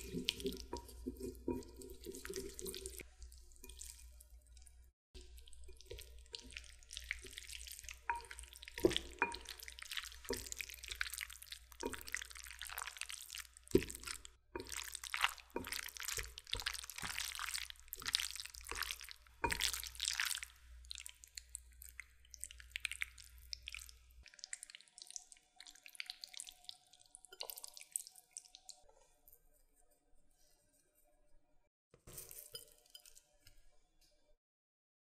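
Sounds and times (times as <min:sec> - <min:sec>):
chopsticks mixing sticky noodles: 0:00.0 - 0:29.9.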